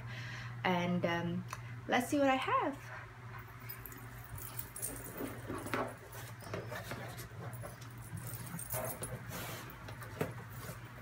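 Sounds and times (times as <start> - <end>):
low steady hum: 0.0 - 11.0
charm bracelets jingling: 3.6 - 5.5.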